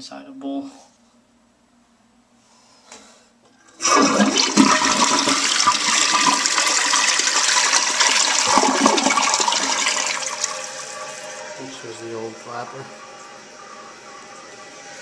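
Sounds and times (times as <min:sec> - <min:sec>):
toilet flushing: 0:03.6 - 0:15.0.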